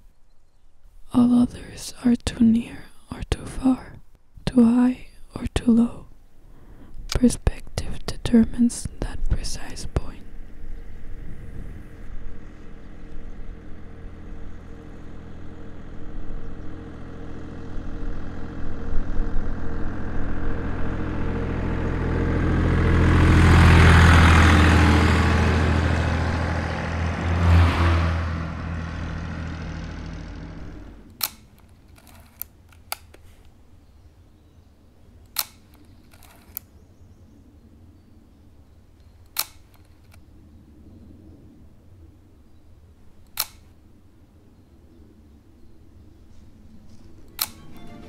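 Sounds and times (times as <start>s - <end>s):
steady low hum: 0.0s - 48.0s
vehicle passing: 10.0s - 31.2s
film camera clicks: 31.1s - 33.2s, 35.3s - 36.7s, 39.3s - 40.2s, 43.3s - 43.7s, 47.3s - 47.7s.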